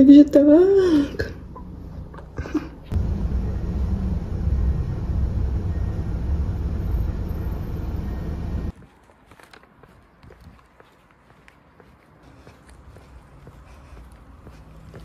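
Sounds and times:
bus engine and road rumble: 0.0s - 8.8s.

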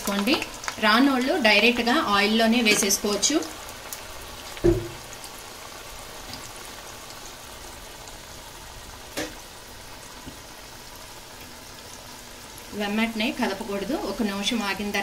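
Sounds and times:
dough deep-frying in oil: 0.0s - 15.0s
low thump: 4.6s - 5.0s.

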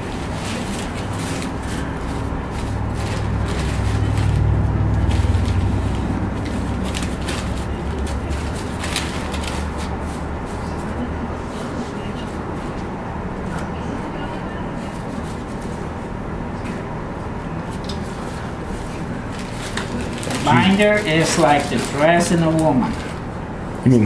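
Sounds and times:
leaves and plastic bag crinkling: 0.1s - 11.0s, 19.2s - 23.2s
low rumble: 2.0s - 10.4s.

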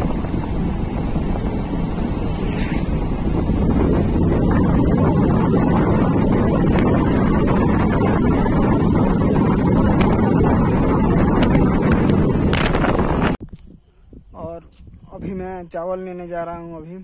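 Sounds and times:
vehicle running noise: 0.0s - 13.4s
wind rumble on microphone: 0.0s - 17.0s.

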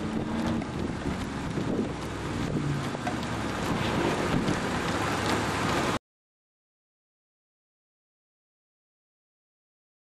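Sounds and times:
wind buffeting microphone: 0.0s - 6.0s.

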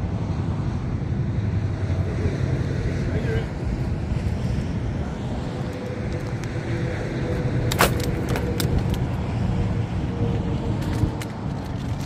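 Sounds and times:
wind rumble on microphone: 0.0s - 12.0s
wire net clicking and crunching: 7.7s - 9.1s.

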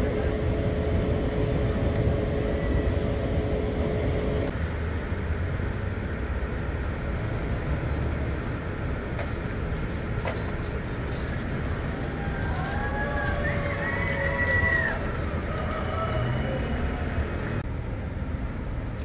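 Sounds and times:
low rumble of vehicles: 0.0s - 19.0s
traffic hiss: 4.5s - 19.0s.

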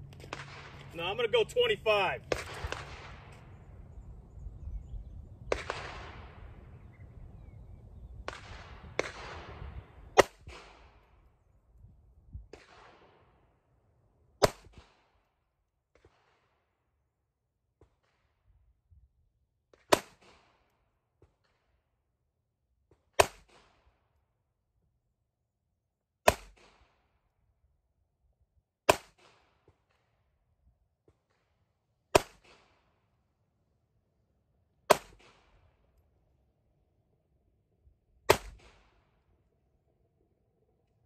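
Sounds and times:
pistol shots: 0.2s - 3.6s, 5.4s - 6.6s, 8.2s - 11.0s, 14.4s - 15.1s, 23.2s - 23.8s, 26.2s - 27.0s, 28.9s - 30.0s, 32.1s - 32.8s, 34.9s - 35.6s, 38.3s - 39.0s.

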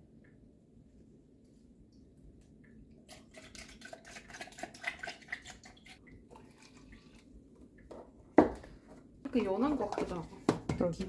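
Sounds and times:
liquid splashing in plastic cup: 3.0s - 8.7s.

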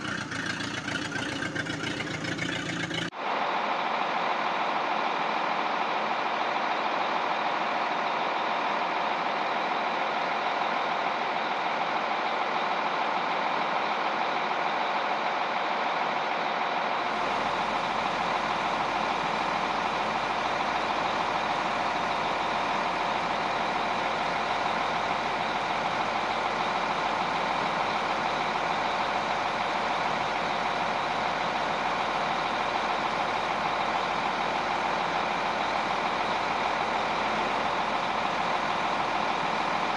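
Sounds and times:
heavy vehicle engine running: 0.0s - 39.9s.

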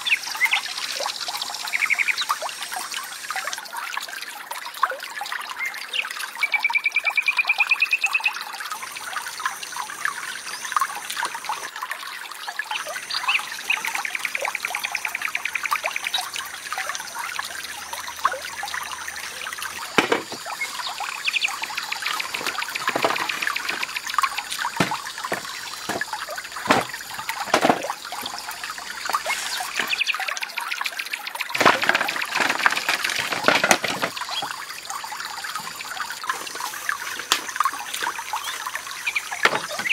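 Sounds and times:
stream trickling: 0.0s - 39.9s
hollow knocks of bamboo poles: 19.9s - 20.5s, 22.0s - 28.4s, 39.4s - 39.9s.

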